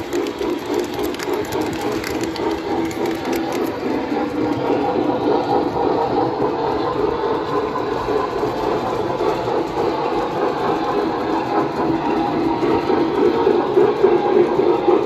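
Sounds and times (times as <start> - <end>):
locomotive motor whirring: 0.0 - 14.1
model train wheels rumbling on rails: 0.0 - 15.0.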